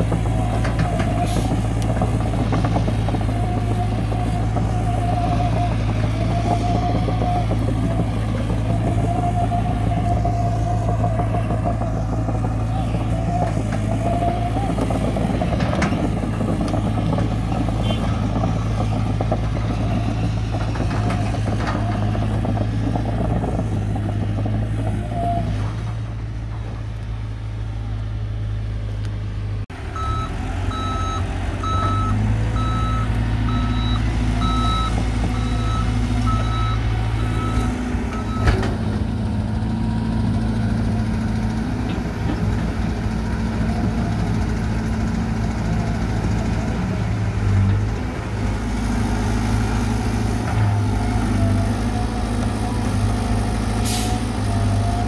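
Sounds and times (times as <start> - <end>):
diesel earthmoving machinery running: 0.0 - 55.0
reversing alarm beeping: 30.0 - 38.7.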